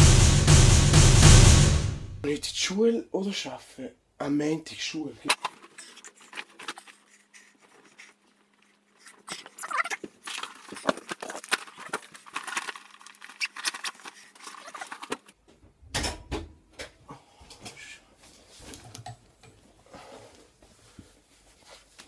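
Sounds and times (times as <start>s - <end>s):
clothes rustling: 5.2s - 15.4s, 20.4s - 22.0s.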